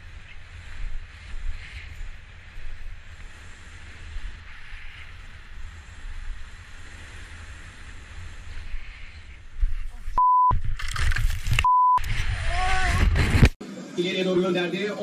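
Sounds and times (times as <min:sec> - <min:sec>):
skis hissing through powder snow: 0:00.0 - 0:10.2.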